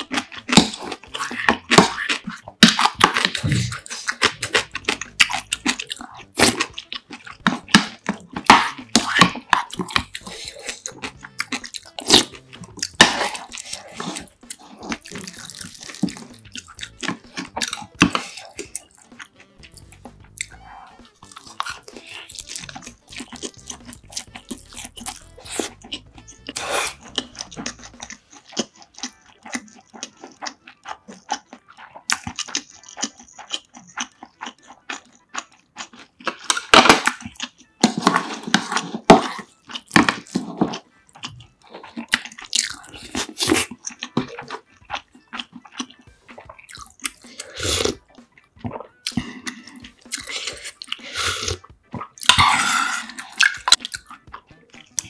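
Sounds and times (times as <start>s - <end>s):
chewing with wet mouth smacks: 0.0s - 55.0s
wet slurps of soup: 25.3s - 28.1s.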